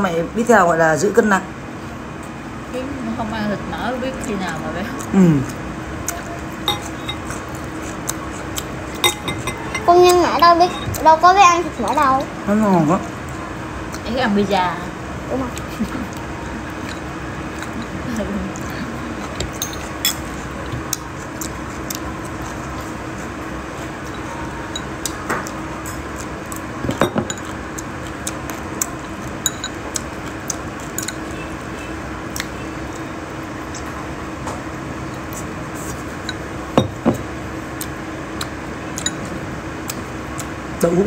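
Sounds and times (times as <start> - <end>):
steady background hum: 0.0 - 41.0
chopsticks clinking on ceramic bowl: 6.6 - 7.5, 9.0 - 11.1, 19.3 - 20.4, 29.4 - 29.9, 30.8 - 31.4.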